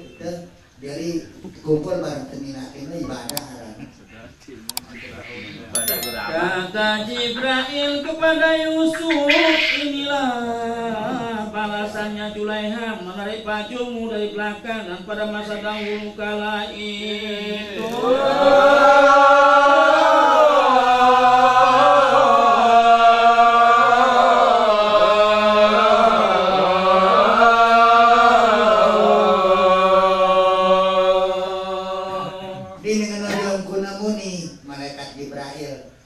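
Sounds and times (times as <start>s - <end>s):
man chanting into a microphone: 7.0s - 17.9s.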